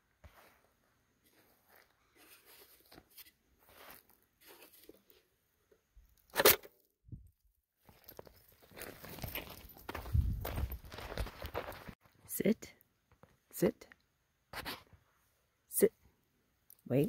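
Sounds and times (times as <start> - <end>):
footsteps crunching on dry dirt: 0.1 - 5.0, 7.8 - 12.0.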